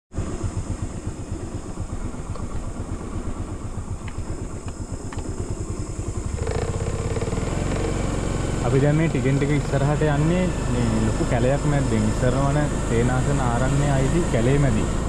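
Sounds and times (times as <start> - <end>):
motorcycle engine running: 0.1 - 15.0.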